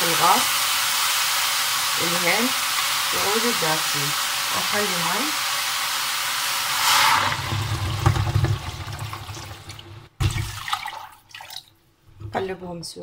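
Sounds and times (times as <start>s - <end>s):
water hissing on hot pot: 0.0s - 9.8s
water pouring from jug: 6.7s - 11.8s.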